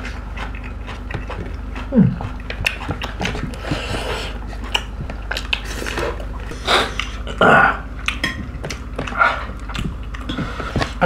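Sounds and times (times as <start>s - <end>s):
fingers mixing rice on ceramic plates: 0.0s - 6.2s
chewing with clicks and smacks: 0.0s - 11.0s.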